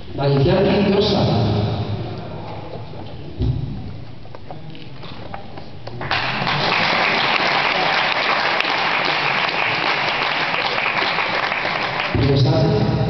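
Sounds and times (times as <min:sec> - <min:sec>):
audience applauding: 0:06.0 - 0:12.2.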